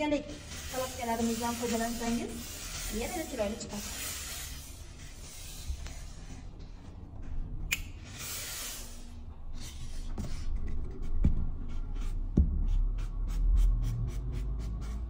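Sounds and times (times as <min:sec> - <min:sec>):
steam iron hissing: 0:00.3 - 0:06.2, 0:08.2 - 0:09.1.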